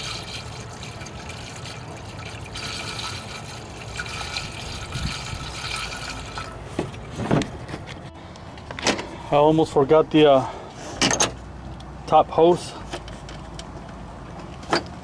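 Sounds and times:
liquid pouring into plastic reservoir: 0.0 - 6.6.

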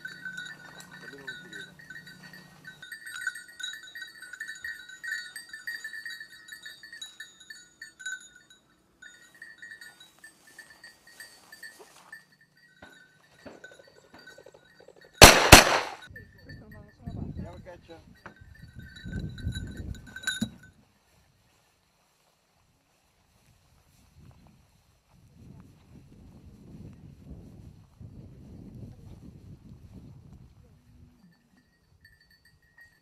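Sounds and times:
dog bell jingling: 0.0 - 15.2, 16.0 - 20.8, 31.1 - 33.0
shotgun shots: 15.2 - 16.1.

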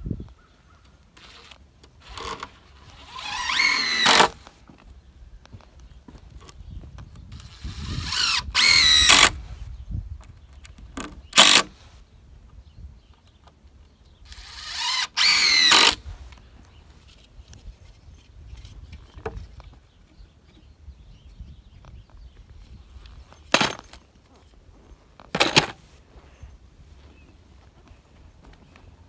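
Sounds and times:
cordless drill driving screws: 1.2 - 4.5, 7.3 - 9.4, 11.3 - 11.7, 14.3 - 16.1.

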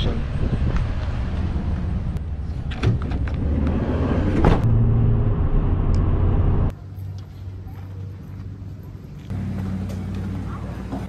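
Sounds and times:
low vehicle rumble: 0.0 - 6.8
sliding door on track: 2.6 - 4.7.

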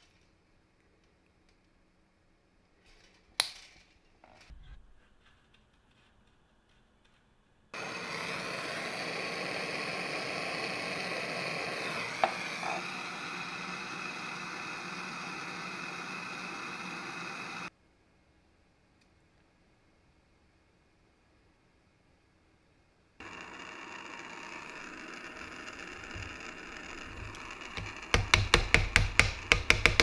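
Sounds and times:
gas torch hissing: 7.8 - 17.7.

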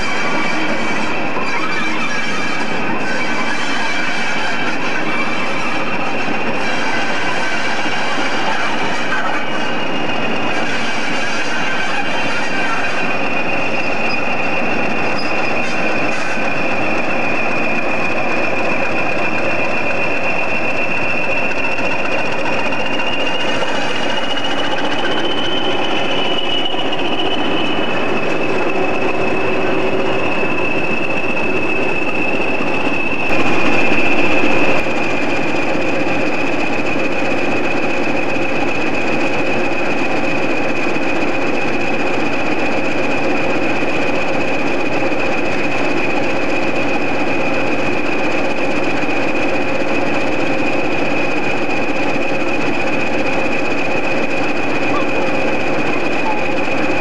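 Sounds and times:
diesel locomotive engine rumble: 0.0 - 57.0
high whistle: 12.8 - 34.9.

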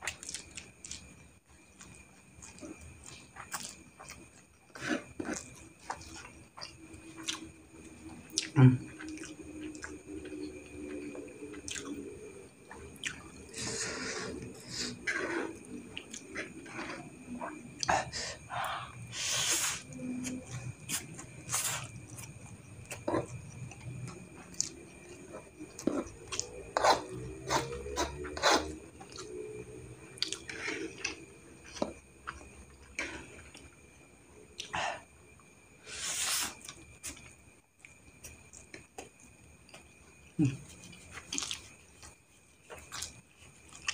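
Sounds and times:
person chewing noodles: 0.0 - 33.9, 39.7 - 43.9
wet chewing: 1.8 - 12.1, 39.7 - 43.9
slurping noodles: 13.4 - 17.1.

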